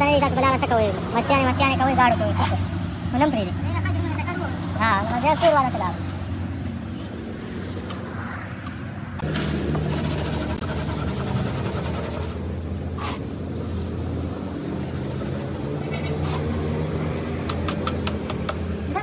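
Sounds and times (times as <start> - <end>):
mixing machine humming: 9.2 - 12.8.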